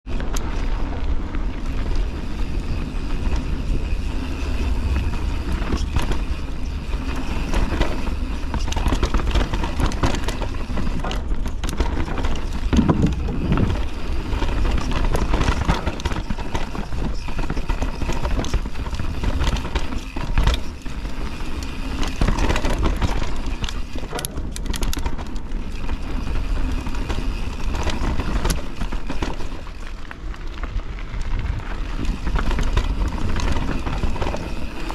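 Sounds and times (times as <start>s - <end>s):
wind buffeting microphone: 0.0s - 20.0s, 30.6s - 34.9s
bike rattling and clicking: 0.0s - 34.9s
bike tyres rumbling on dirt: 0.0s - 34.9s.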